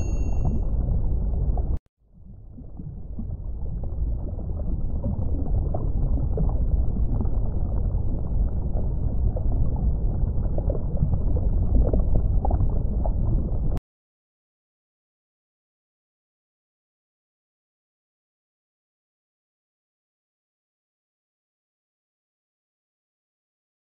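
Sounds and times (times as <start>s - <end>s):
short bright chime: 0.0s - 0.6s
low underwater rumble: 0.0s - 13.8s.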